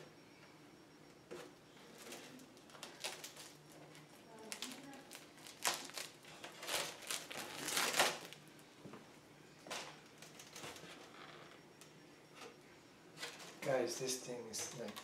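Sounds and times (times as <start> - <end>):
plastic film rustling and crinkling: 2.1 - 3.6, 4.5 - 8.4.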